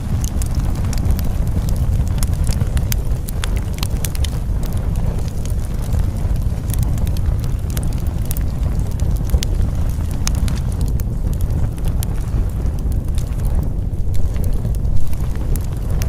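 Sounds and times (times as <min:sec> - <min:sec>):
fire crackling and popping: 0:00.0 - 0:16.0.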